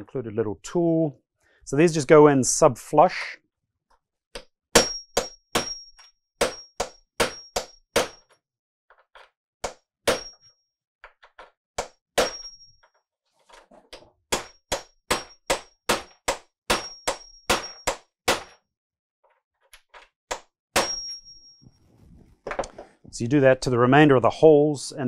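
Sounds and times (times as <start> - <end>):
hammer tapping metal tool: 4.4 - 8.4, 14.3 - 18.6.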